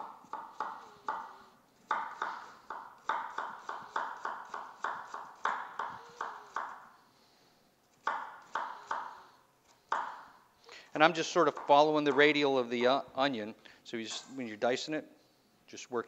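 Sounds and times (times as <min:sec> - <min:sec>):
knife chopping on wooden board: 0:00.0 - 0:06.8, 0:08.0 - 0:09.2, 0:09.9 - 0:10.3.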